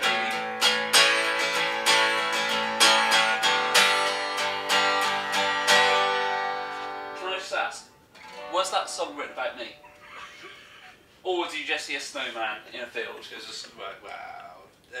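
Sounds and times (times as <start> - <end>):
acoustic guitar strumming chords: 0.0 - 10.0.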